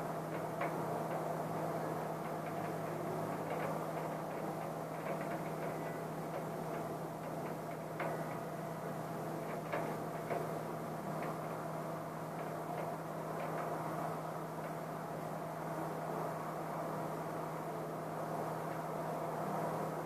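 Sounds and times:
steady low hum: 0.0 - 20.0
drops ticking against window: 0.3 - 14.8.

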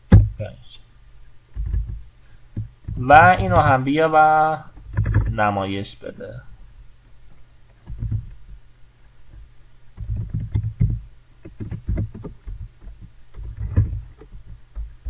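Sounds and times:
typing on a keyboard: 10.0 - 15.0.

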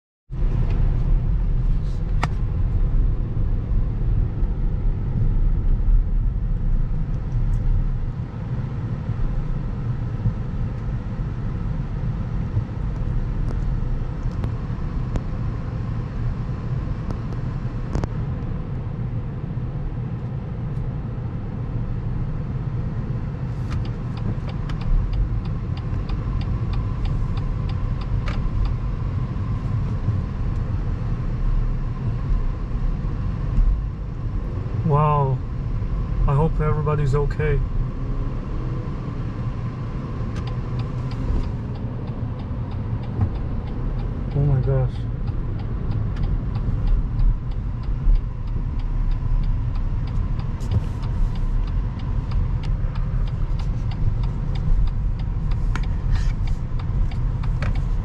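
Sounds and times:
engine and tyre rumble: 0.3 - 58.0.

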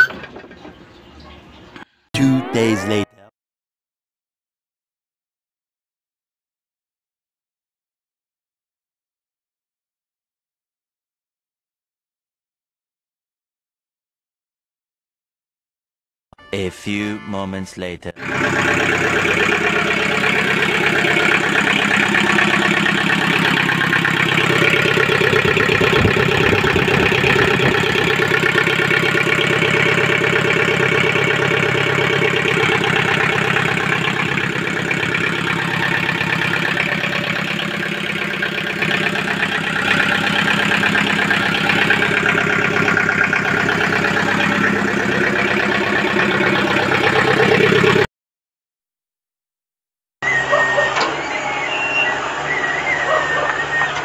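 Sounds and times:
diesel engine idling: 17.8 - 48.1, 50.2 - 54.0.

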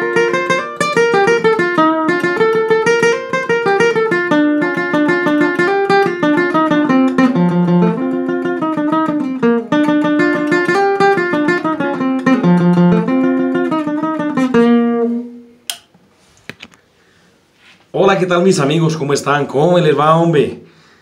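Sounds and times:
acoustic guitar melody: 0.0 - 15.7
sharp click: 15.6 - 16.8.

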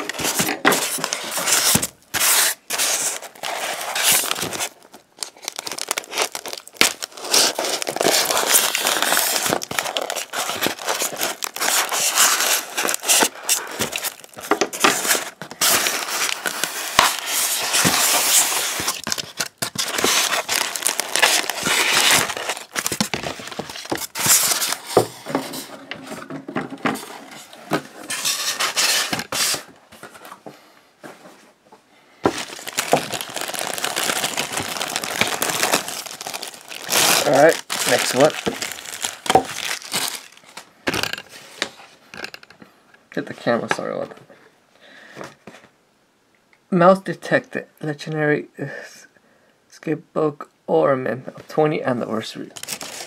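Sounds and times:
plastic bag crinkling: 0.0 - 25.0, 32.3 - 41.4, 52.5 - 53.0
plastic wrap crackling: 0.0 - 25.1, 32.2 - 42.5, 52.5 - 53.0
foam packing blocks scraping: 0.0 - 30.1, 32.3 - 40.4.

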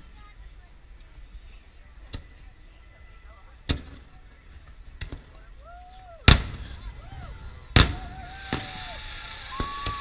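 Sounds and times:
firework shells booming: 6.3 - 6.8, 7.7 - 10.0
high hiss: 7.8 - 10.0.

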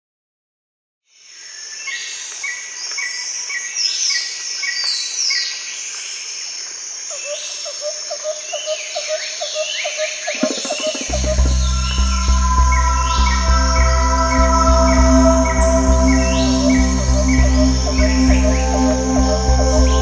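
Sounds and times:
birds chirping and whistling: 10.3 - 20.0
low repeating animal call: 10.3 - 20.0.

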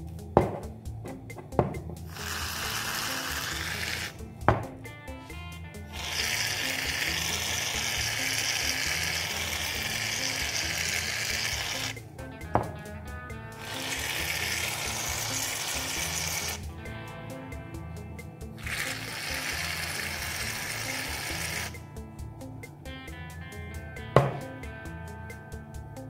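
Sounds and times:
background music: 0.0 - 26.0
aerosol can spraying: 2.1 - 4.7, 5.9 - 12.0, 13.6 - 16.7, 18.6 - 21.8.

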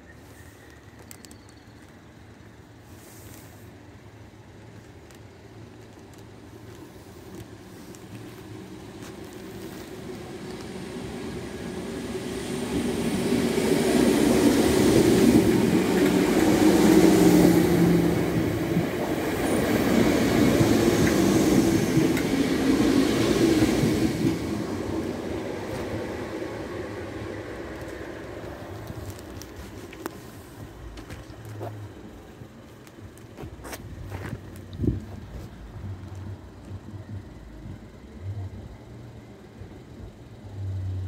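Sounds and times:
electric train passing: 0.0 - 41.0.

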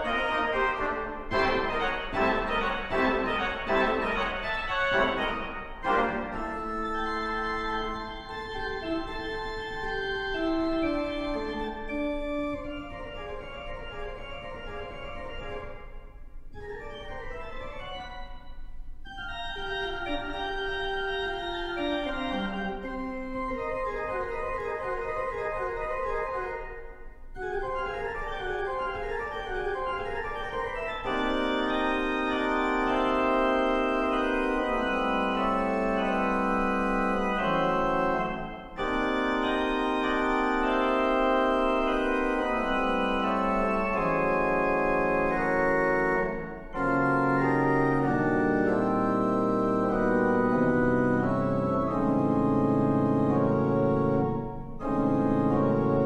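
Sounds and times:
pipe organ playing: 0.0 - 56.0.

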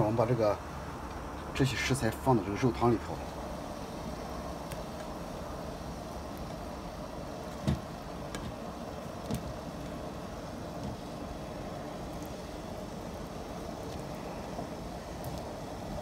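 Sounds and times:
steady low noise: 0.0 - 16.0.

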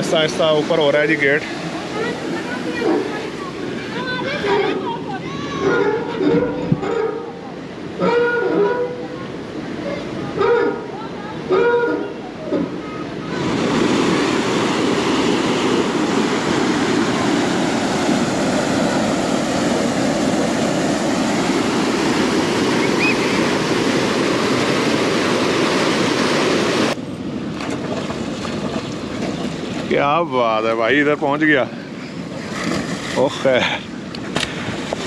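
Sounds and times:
water rushing through sluice gate: 0.0 - 27.0, 27.6 - 35.0.

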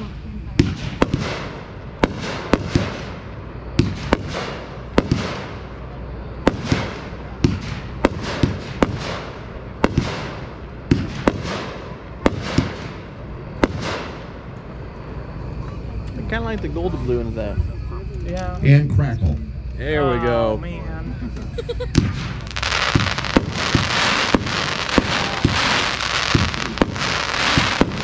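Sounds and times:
firework bangs with hiss: 0.0 - 5.8, 6.4 - 14.4, 21.9 - 28.0.

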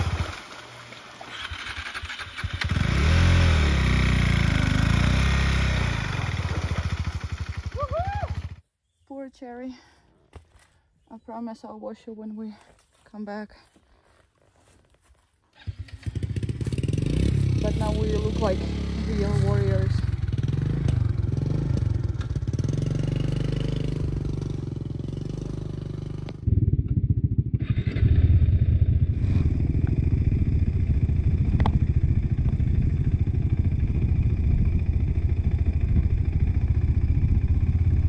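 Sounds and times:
motorcycle engine running: 1.4 - 8.6, 15.6 - 38.0.

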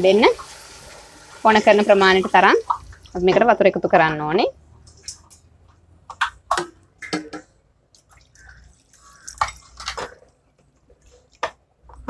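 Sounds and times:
water splashing into metal pot: 0.0 - 3.5, 6.1 - 10.3.

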